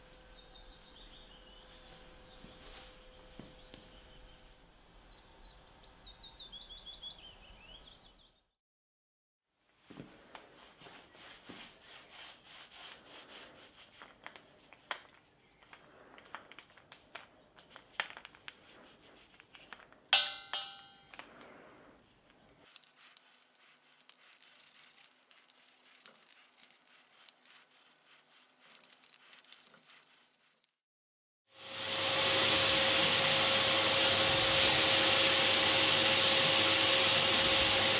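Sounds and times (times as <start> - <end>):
paint roller rubbing: 10.2 - 20.0, 21.5 - 30.8, 31.8 - 37.9
sharp metallic clank: 20.2 - 21.2.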